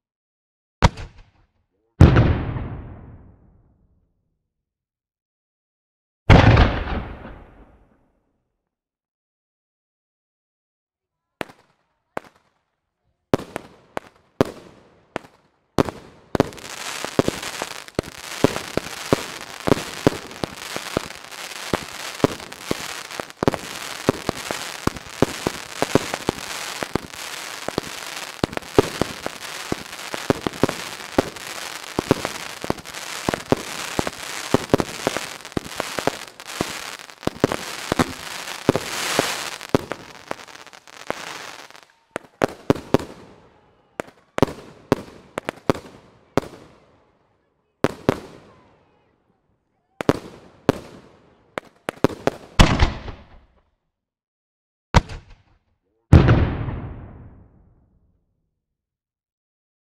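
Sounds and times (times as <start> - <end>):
fireworks bangs: 2.0 - 3.5, 6.3 - 7.8, 13.4 - 46.8, 47.8 - 49.1, 50.0 - 53.5, 55.0 - 57.8
fireworks crackling: 15.8 - 43.6, 44.3 - 46.6.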